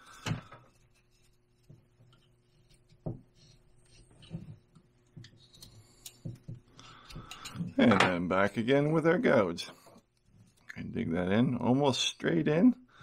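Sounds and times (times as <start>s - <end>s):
knife shaving wood: 0.0s - 4.2s.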